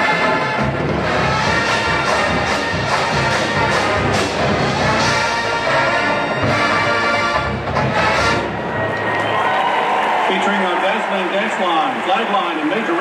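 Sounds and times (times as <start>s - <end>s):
marching band playing: 0.0s - 8.9s
drumline hits: 0.0s - 9.2s.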